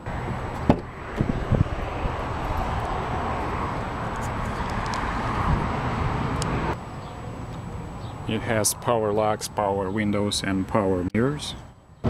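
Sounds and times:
knocks of car door opening: 0:00.6 - 0:01.3.

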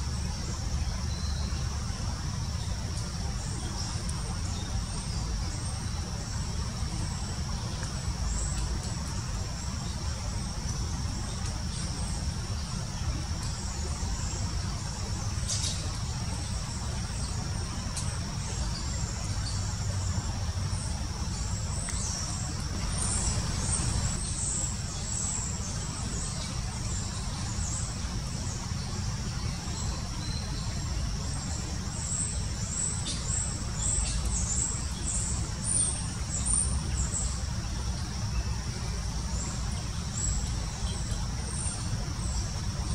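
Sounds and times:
low background rumble: 0:00.0 - 0:32.9.

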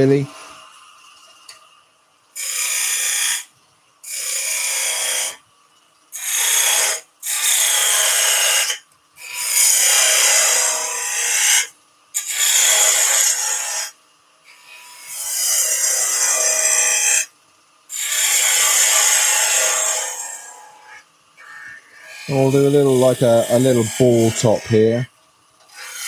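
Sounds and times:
lathe gouge scraping wood: 0:22.0 - 0:24.9.

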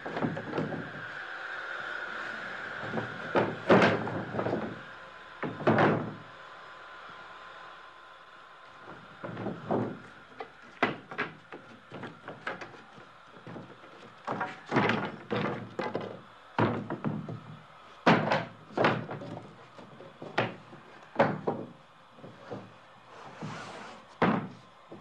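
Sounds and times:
wooden boards thunking on pile: 0:00.0 - 0:00.9, 0:02.8 - 0:04.8, 0:05.4 - 0:06.2, 0:08.8 - 0:22.7, 0:23.4 - 0:25.0.

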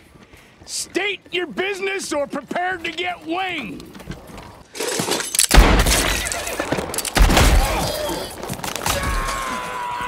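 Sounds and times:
pistol gunshots: 0:05.5 - 0:06.4, 0:07.1 - 0:08.1.

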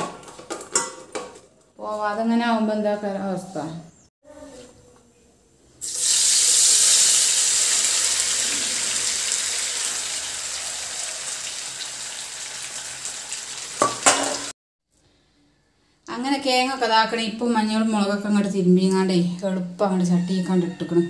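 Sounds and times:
potato strips sizzling in hot oil: 0:05.8 - 0:14.5.

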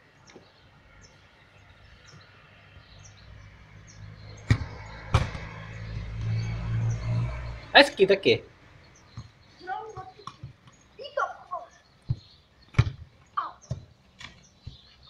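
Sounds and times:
faint bird chirps: 0:08.8 - 0:15.0
rubber ball thudding on ground: 0:12.1 - 0:14.9.

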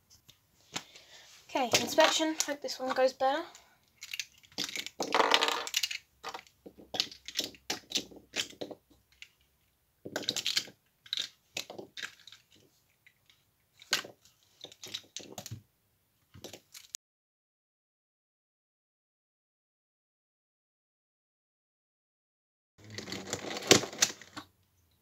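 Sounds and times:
plastic cube pieces clicking: 0:03.5 - 0:15.6.

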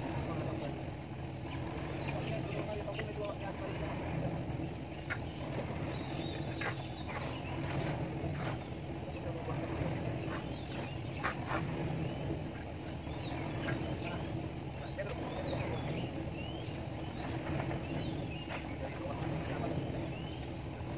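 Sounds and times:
engine humming: 0:00.0 - 0:20.9
short knocks and scrapes: 0:05.1 - 0:08.7, 0:10.2 - 0:12.0.

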